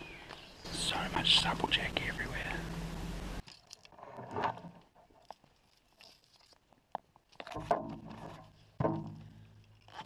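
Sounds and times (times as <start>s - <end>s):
twigs and leaves crackling underfoot: 3.4s - 10.0s.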